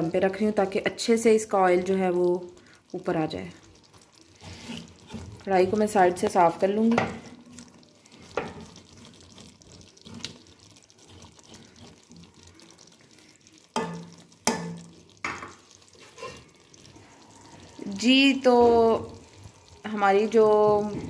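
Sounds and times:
food sizzling faintly in pan: 0.0s - 21.0s
spatula tapping and scraping pan: 6.8s - 7.3s, 8.3s - 9.0s, 13.7s - 16.4s.

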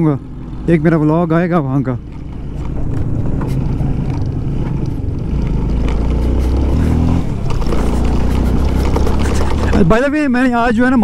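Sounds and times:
knocks and rattles from bumpy road: 0.0s - 11.0s
motorcycle engine running: 0.0s - 11.0s.

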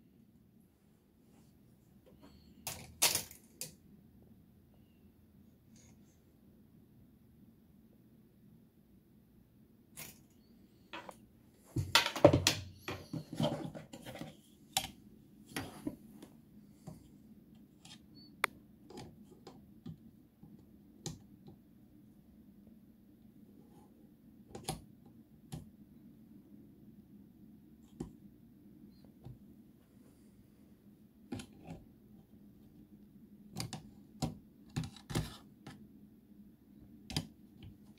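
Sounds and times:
drawer runner scraping and rubbing: 12.7s - 14.5s.

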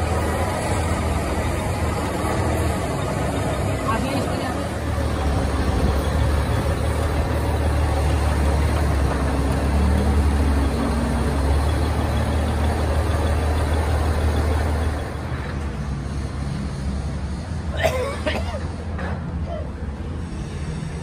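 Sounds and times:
truck engine idling: 0.0s - 15.9s.

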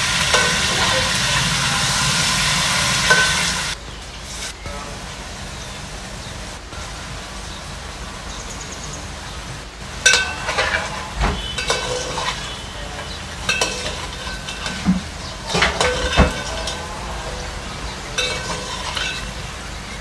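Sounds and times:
metal spatula scraping a pan: 0.0s - 3.8s, 10.0s - 20.0s
chicken sizzling in oil: 0.0s - 20.0s.

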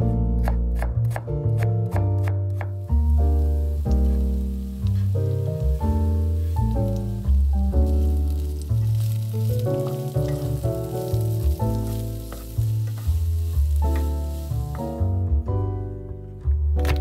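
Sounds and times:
background music with bass: 0.0s - 17.0s
food sizzling in frying pan: 3.1s - 15.0s.

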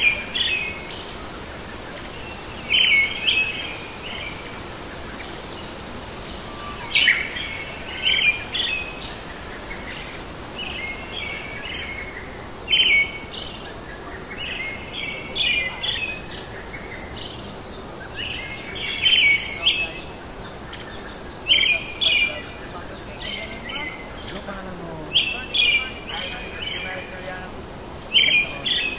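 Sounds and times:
birds chirping: 0.0s - 28.9s
steady background hiss: 0.0s - 28.9s.

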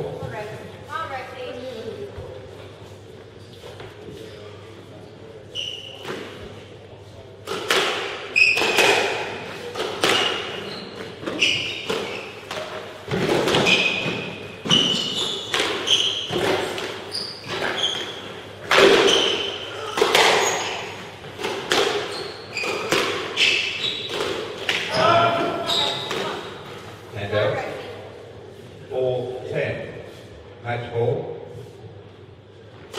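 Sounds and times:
squash ball hitting rackets: 7.4s - 26.5s
shoes squeaking on wooden floor: 10.4s - 26.9s.

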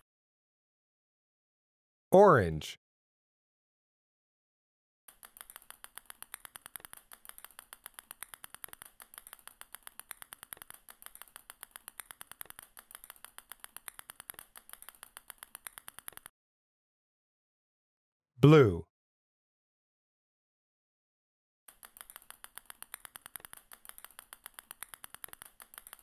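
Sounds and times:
rapid light clicks: 5.1s - 16.3s, 21.7s - 26.0s.

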